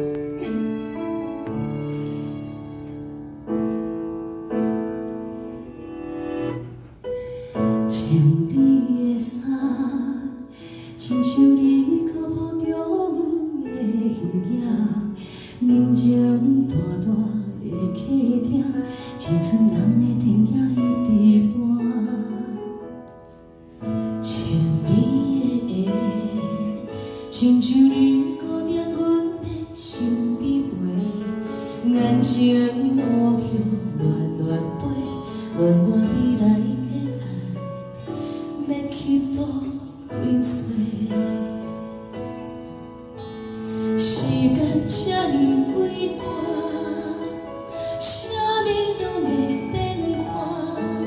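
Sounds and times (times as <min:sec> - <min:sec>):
instrumental backing music: 0:00.0 - 0:51.0
two women singing a pop ballad: 0:07.9 - 0:22.6, 0:24.2 - 0:37.6, 0:38.5 - 0:41.7, 0:44.0 - 0:51.0.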